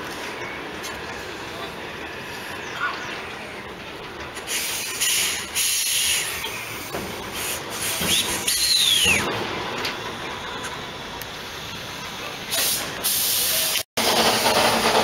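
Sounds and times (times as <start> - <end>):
steam locomotive hissing steam: 4.4 - 9.3, 10.8 - 15.0
falling squeal: 8.1 - 9.3.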